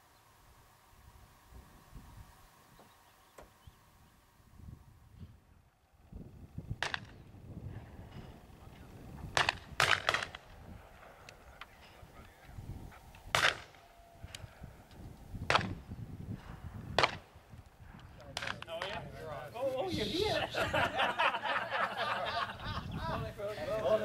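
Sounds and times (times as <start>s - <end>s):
shotgun shots: 9.3s - 10.5s, 13.3s - 13.8s.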